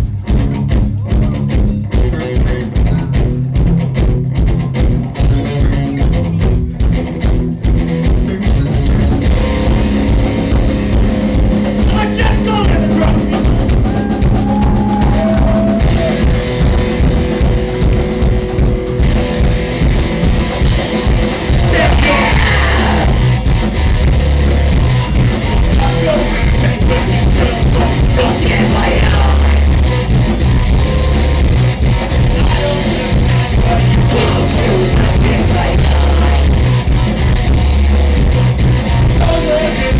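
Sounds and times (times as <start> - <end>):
live rock band playing: 0.0 - 39.9.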